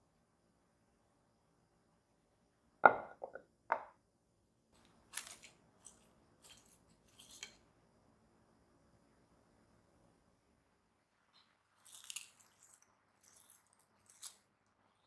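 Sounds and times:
pan knocking on counter: 2.8s - 3.9s.

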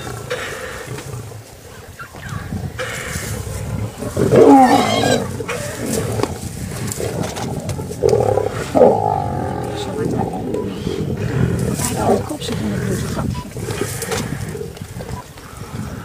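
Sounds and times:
lions growling: 0.0s - 16.0s.

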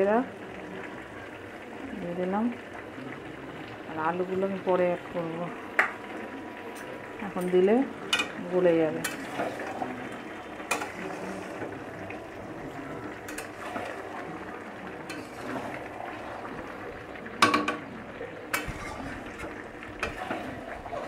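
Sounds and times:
curry bubbling and sizzling: 0.0s - 21.0s
spatula stirring: 8.1s - 17.5s, 18.5s - 21.0s.

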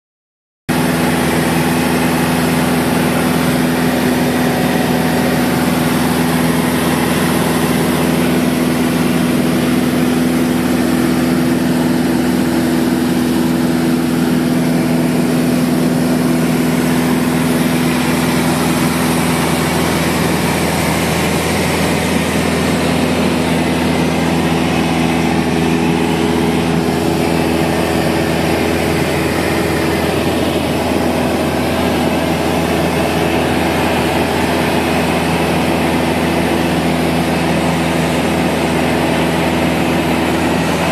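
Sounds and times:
airplane engine and propeller droning: 0.7s - 40.9s.

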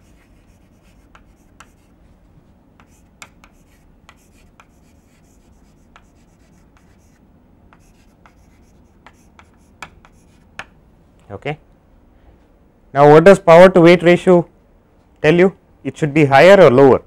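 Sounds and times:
chalk tapping on blackboard: 0.0s - 1.9s, 2.8s - 10.8s
chalk scratching on blackboard: 0.0s - 2.0s, 2.8s - 10.6s.

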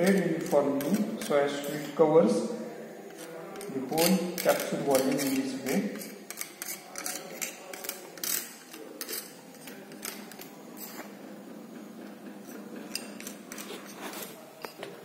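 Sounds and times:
powder scraping on metal tray: 3.0s - 11.2s, 12.4s - 14.7s.

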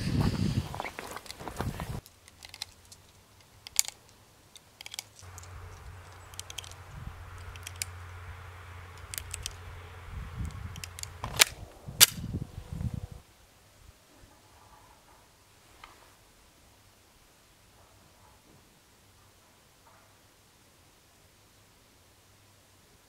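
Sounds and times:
cartridges clicking into magazine: 2.0s - 8.2s, 8.9s - 9.6s, 10.4s - 12.2s
pistol clacking: 2.0s - 8.2s, 8.9s - 9.6s, 10.4s - 12.2s
faint low rumble: 5.2s - 13.2s.

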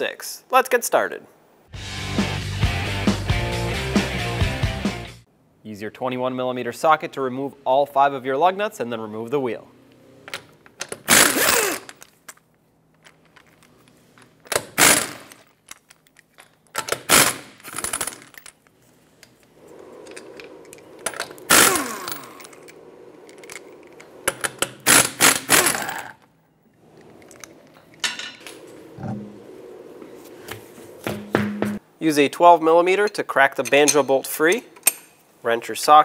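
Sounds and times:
pneumatic impact wrench rattling: 10.3s - 12.3s, 14.3s - 18.6s, 19.4s - 26.2s.

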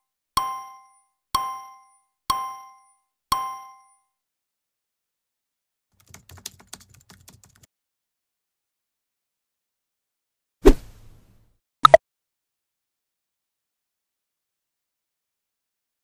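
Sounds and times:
bell-like ding: 0.4s - 4.1s
keyboard typing clicks: 6.0s - 7.7s.

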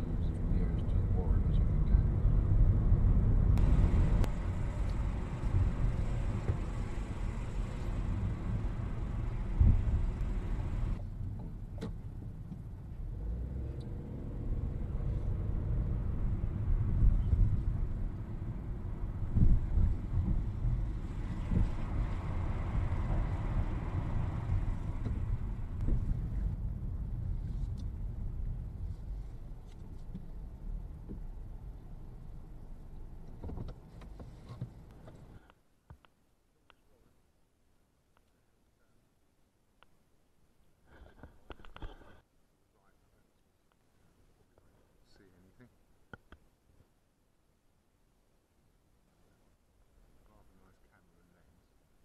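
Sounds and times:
road noise: 0.0s - 36.1s
car engine and tyre rumble: 0.0s - 38.7s.

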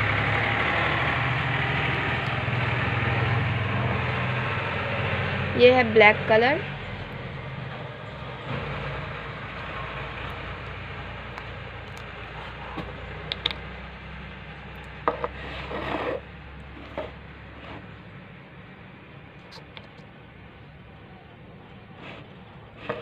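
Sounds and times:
brief scrape: 15.1s - 16.2s.

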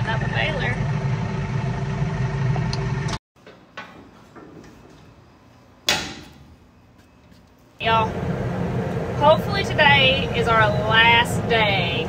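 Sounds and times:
machine running: 0.0s - 3.2s, 7.8s - 12.0s.

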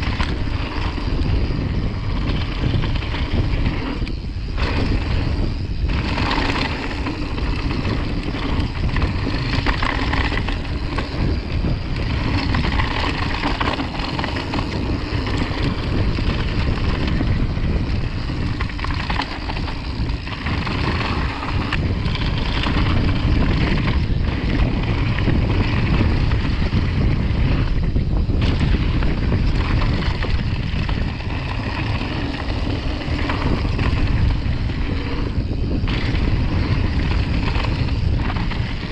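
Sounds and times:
bike tyres rumbling on gravel: 0.0s - 38.9s
wind rushing over microphone: 0.0s - 38.9s.

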